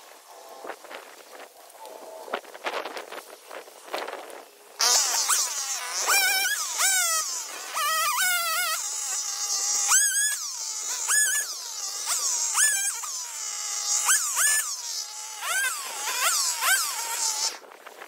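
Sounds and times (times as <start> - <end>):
chainsaw revving: 4.8 - 17.6.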